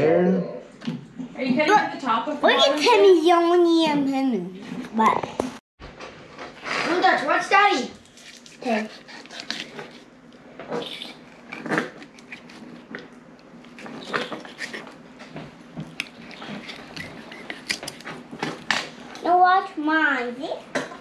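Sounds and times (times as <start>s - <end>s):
knife crunching and scraping fish: 8.1s - 10.1s, 10.7s - 13.0s, 13.6s - 15.0s, 15.8s - 18.7s.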